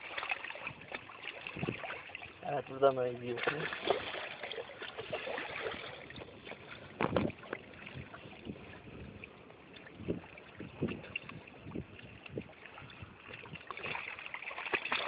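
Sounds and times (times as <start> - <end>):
wind on microphone: 0.6 - 2.1, 4.9 - 14.0.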